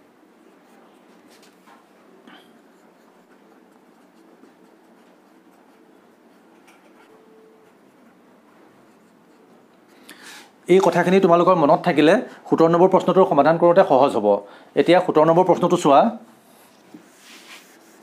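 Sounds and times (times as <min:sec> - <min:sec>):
marker pen scratching on paper: 0:00.7 - 0:10.0, 0:16.5 - 0:18.0.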